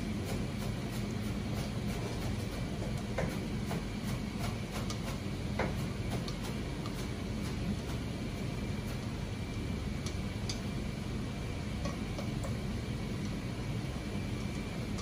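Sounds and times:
kitchen hum: 0.0 - 15.0.

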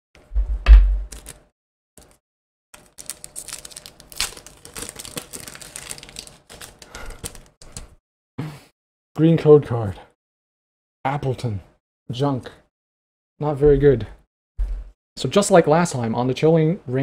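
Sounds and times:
loud low thump: 0.4 - 1.1, 13.7 - 14.9
foil wrapper crinkling and tearing: 1.1 - 1.4, 2.8 - 8.0.

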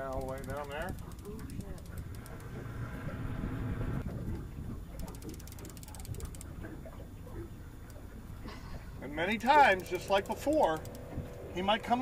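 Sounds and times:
fishing reel clicking: 0.0 - 2.5, 5.0 - 6.5, 9.4 - 12.0.

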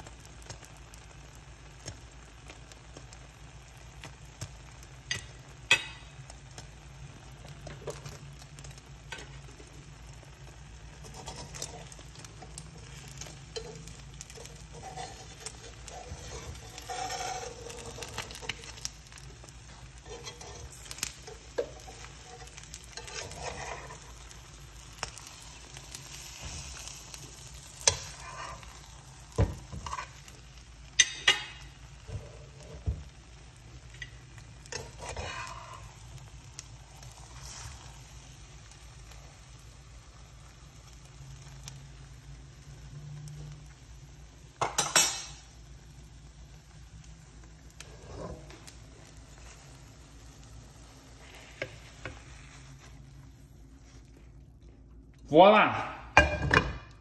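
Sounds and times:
omelette sizzling in a pan: 0.0 - 57.0
metal fork scraping a pan: 11.0 - 24.4, 27.8 - 29.0, 29.7 - 30.3, 34.0 - 35.9.

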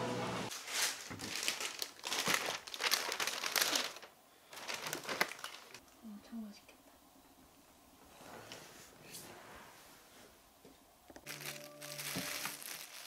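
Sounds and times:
takeout packaging crinkling: 0.5 - 5.8, 11.2 - 13.0.

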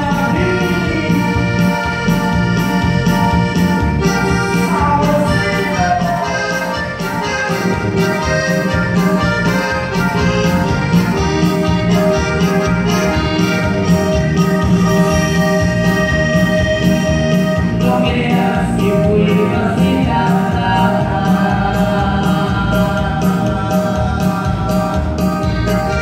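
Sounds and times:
accordion melody: 0.0 - 26.0
dance music over speakers: 10.1 - 26.0.

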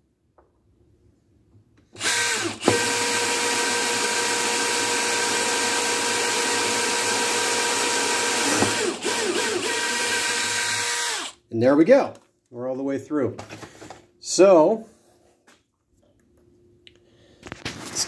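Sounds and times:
cordless drill whining: 2.0 - 11.4.

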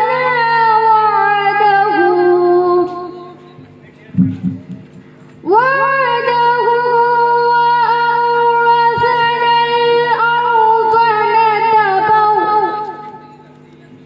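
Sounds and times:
girl reciting melodically: 0.0 - 3.4, 5.4 - 13.1.

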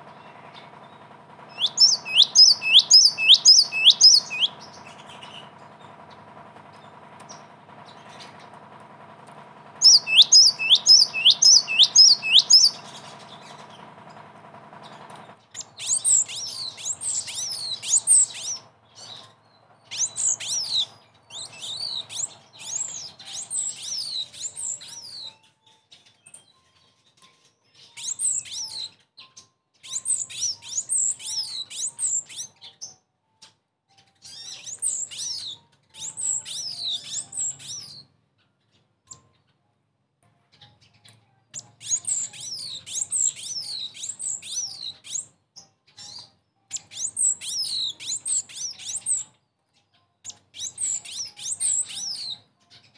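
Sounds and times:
bird chirps and whistles: 1.5 - 5.5, 9.8 - 13.6, 15.6 - 25.4, 27.8 - 29.0, 29.8 - 33.0, 34.2 - 38.1, 41.6 - 45.3, 46.0 - 49.3, 50.3 - 52.4.

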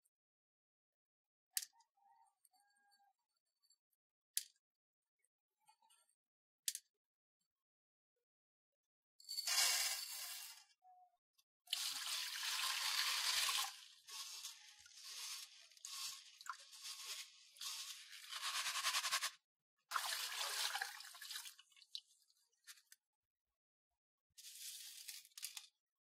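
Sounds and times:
beans swished in strainer in water: 11.8 - 21.5, 24.4 - 25.2.

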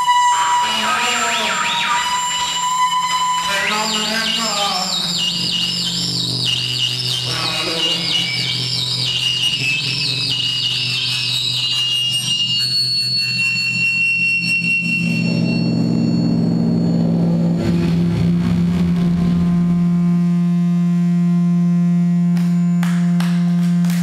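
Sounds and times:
high whistle: 0.0 - 17.0
warbling synthesizer tones: 0.0 - 22.8
buzzing hum: 0.0 - 24.0
low synthesizer drone: 0.0 - 24.0.

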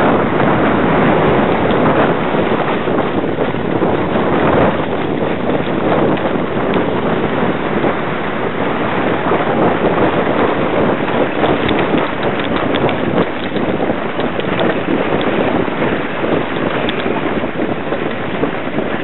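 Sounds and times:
sledge scraping over snow: 0.0 - 19.0
wind rushing over microphone: 0.0 - 19.0
small clicks and knocks: 11.6 - 15.3, 16.7 - 17.1.

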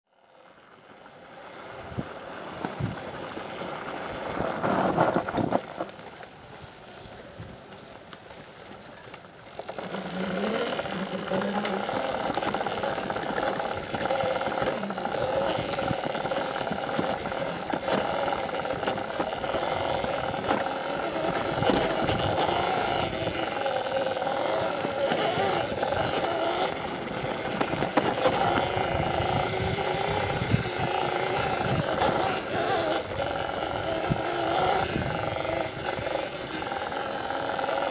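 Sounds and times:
wind and tyre noise: 0.2 - 37.9
electric motor whining: 9.6 - 37.9.

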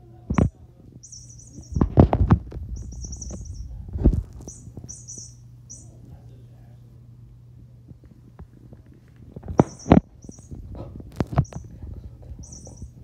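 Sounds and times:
toy electronic chirping: 1.0 - 1.9, 2.8 - 3.7, 4.5 - 6.0, 9.6 - 10.6, 11.4 - 11.7, 12.4 - 13.0.

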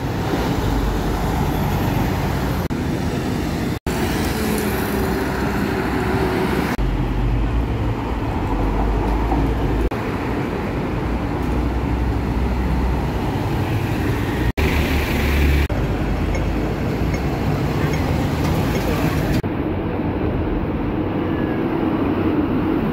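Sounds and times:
trucks and buses passing: 0.0 - 22.9
tyre and road noise: 0.0 - 22.9.

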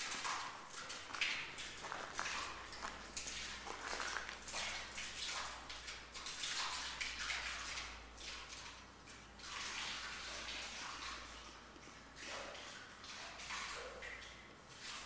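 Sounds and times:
footsteps crunching on debris: 1.0 - 4.6.

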